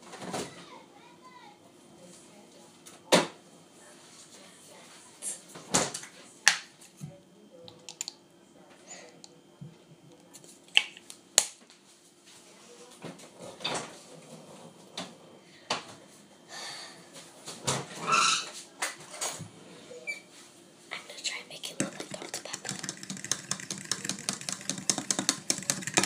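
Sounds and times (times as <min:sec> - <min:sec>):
bottle and items clicking: 0:21.8 - 0:26.0.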